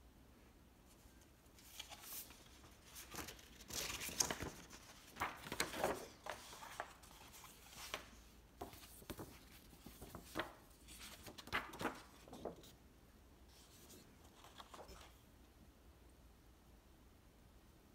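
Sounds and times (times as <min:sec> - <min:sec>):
paper rustling and sliding: 0:00.9 - 0:12.8, 0:13.5 - 0:15.2.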